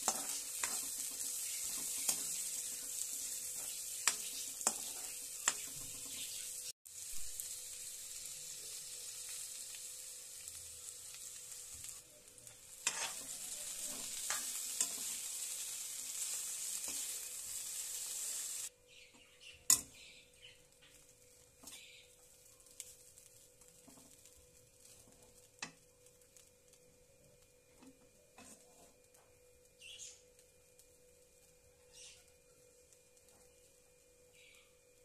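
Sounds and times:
spatula scraping pan: 0.0s - 6.4s, 12.8s - 15.3s, 28.4s - 29.0s
food sizzling in oil: 0.0s - 35.0s.

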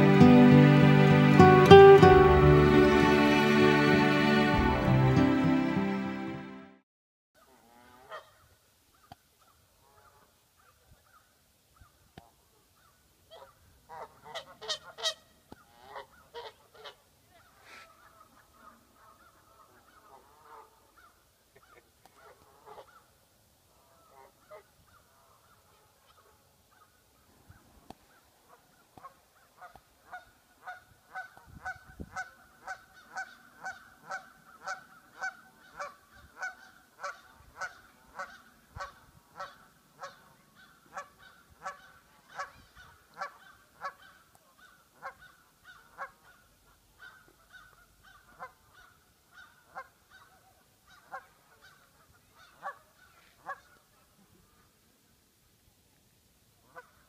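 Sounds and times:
goose honking: 13.3s - 23.0s, 29.0s - 46.4s.

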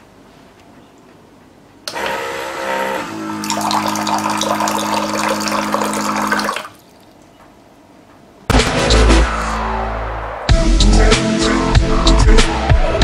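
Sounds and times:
water dispenser pump humming: 1.9s - 7.4s
water splashing into a glass jug: 3.4s - 7.2s.

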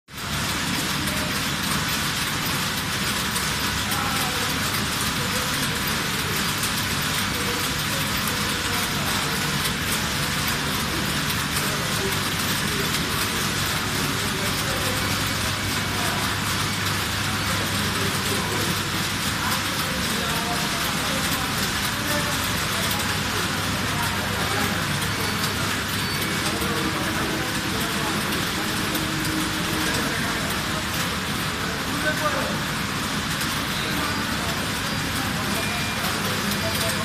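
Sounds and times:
knitting machines mechanical din: 0.1s - 37.0s.

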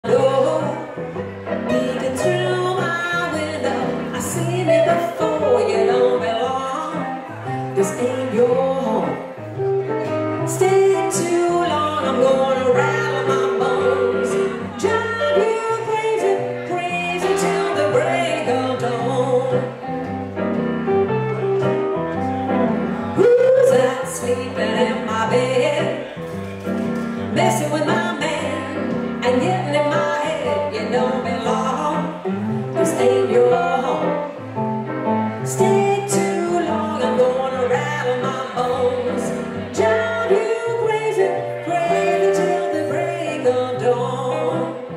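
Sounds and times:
stage keyboard: 0.0s - 44.9s
electric guitar playing blues: 0.1s - 44.9s.

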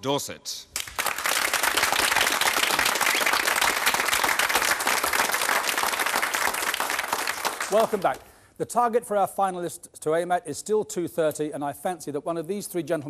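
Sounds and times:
audience applauding: 0.8s - 8.2s.

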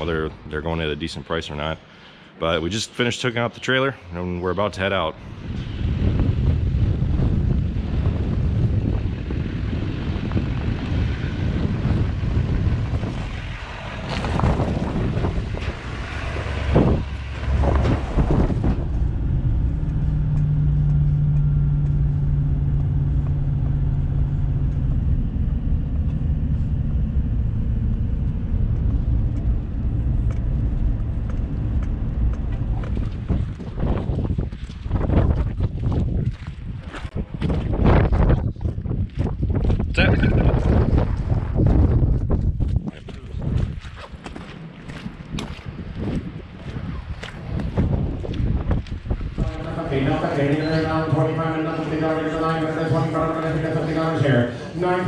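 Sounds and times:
wind on microphone: 5.2s - 54.2s
truck engine: 5.3s - 36.7s, 47.9s - 55.0s
road hum inside cab: 5.7s - 36.8s.

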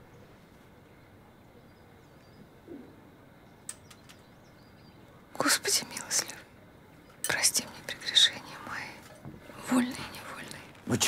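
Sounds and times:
faint hiss: 0.0s - 11.0s
soft clicks: 3.7s - 4.3s.

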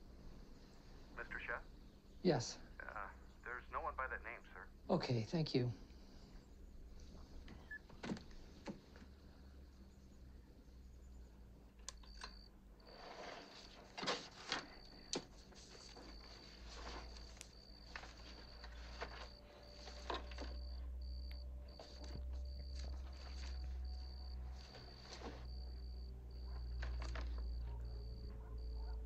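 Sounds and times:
low room hum: 0.0s - 29.0s
paper rustling and shuffling: 12.9s - 20.8s, 21.7s - 25.6s, 26.5s - 27.6s.

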